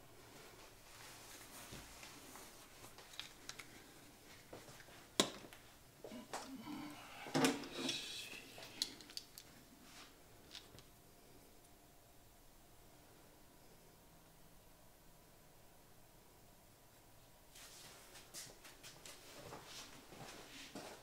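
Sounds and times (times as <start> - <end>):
plastic parts clicking and rattling: 3.0 - 3.7, 8.6 - 9.5.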